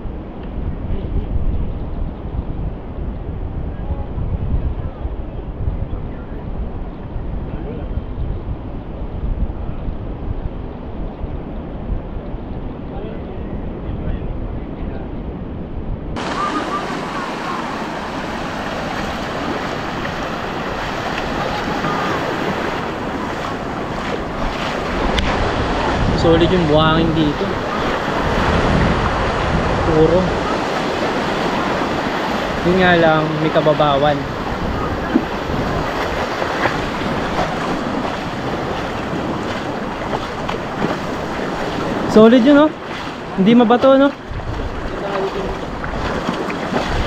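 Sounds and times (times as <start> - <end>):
wind buffeting microphone: 0.0 - 47.0
sea water splashing around feet: 16.2 - 26.2, 27.2 - 47.0
waves washing on sandy shore: 16.2 - 47.0.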